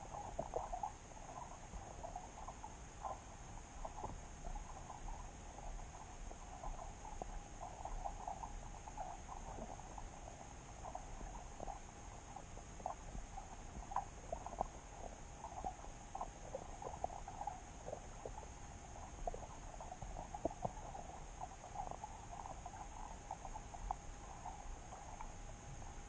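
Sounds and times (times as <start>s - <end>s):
underwater clicks and crackles: 0.0s - 26.0s
underwater steady hiss: 0.0s - 26.0s.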